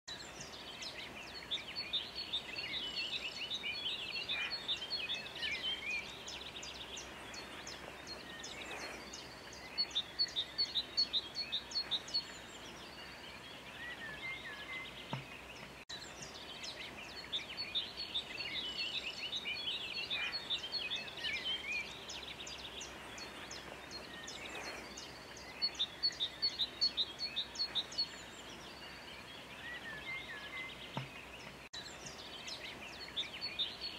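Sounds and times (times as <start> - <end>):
songbirds chirping and trilling: 0.1 - 33.9.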